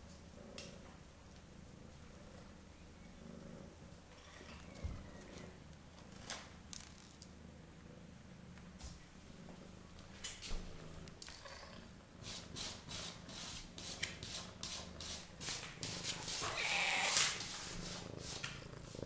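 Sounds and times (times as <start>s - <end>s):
cat scratching litter: 12.2s - 19.0s.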